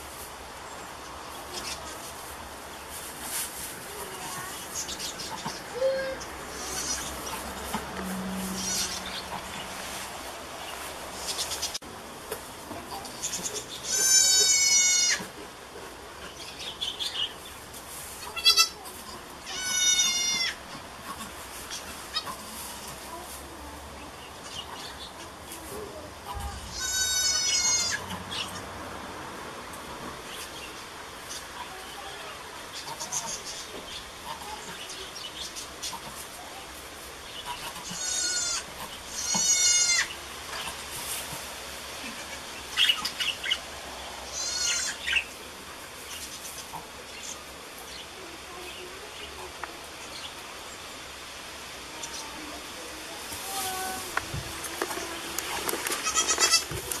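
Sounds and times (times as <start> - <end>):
goat kid bleating: 4.4 - 7.5, 8.5 - 9.3, 13.3 - 15.3, 18.2 - 20.7, 26.3 - 28.2, 31.6 - 33.4, 37.8 - 40.2, 44.3 - 45.2, 55.8 - 57.0.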